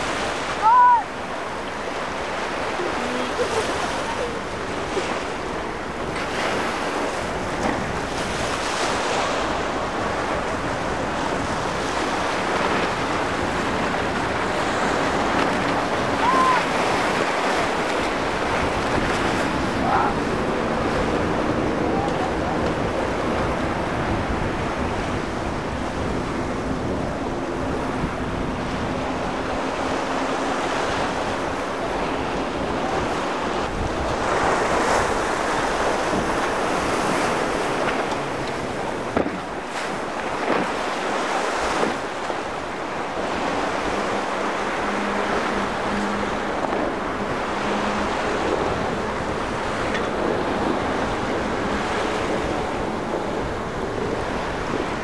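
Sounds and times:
choppy water and surf rushing: 0.0 - 55.0
faint outboard motors droning: 0.0 - 55.0
wind buffeting microphone: 0.0 - 55.0.

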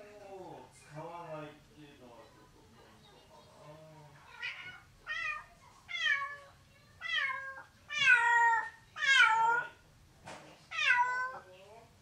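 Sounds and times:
cat meowing: 4.2 - 9.8, 10.7 - 11.4.

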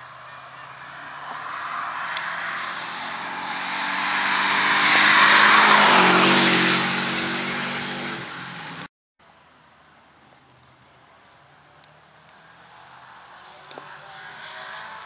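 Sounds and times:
rally car engine passing: 0.0 - 8.9, 11.6 - 15.0.

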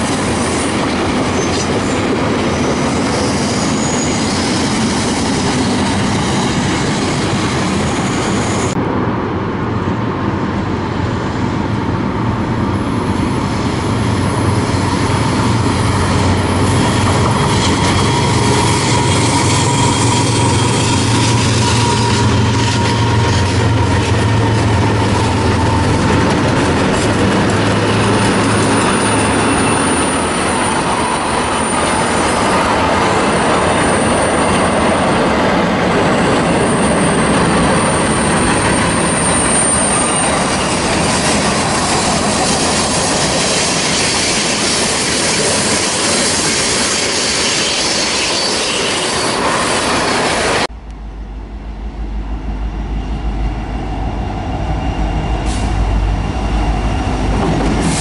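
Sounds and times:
approaching locomotive rumble: 0.0 - 58.0
train wheels rumbling on rails: 0.0 - 58.0
high-pitched wheel squeal: 1.4 - 5.8, 15.8 - 26.1, 36.2 - 50.5.

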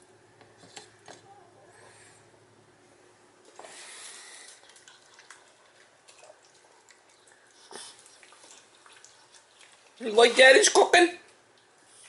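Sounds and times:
dog chewing and licking: 4.4 - 10.0.

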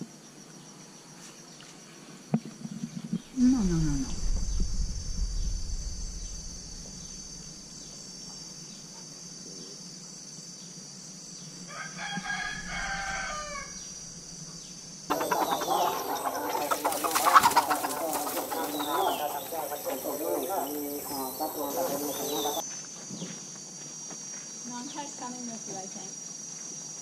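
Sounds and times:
high insect drone: 0.0 - 27.0
chickens in yard: 11.6 - 13.9, 15.1 - 22.6
rooster crowing: 11.6 - 14.0, 15.1 - 22.6.

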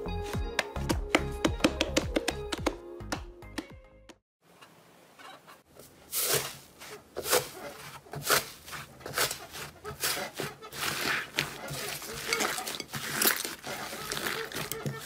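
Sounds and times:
slime squelching: 6.1 - 15.0.

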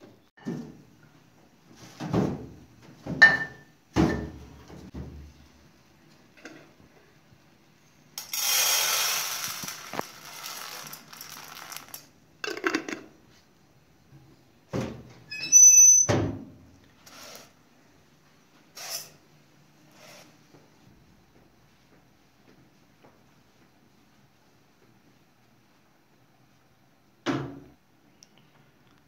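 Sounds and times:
lentils pouring into metal pot: 8.2 - 12.1.

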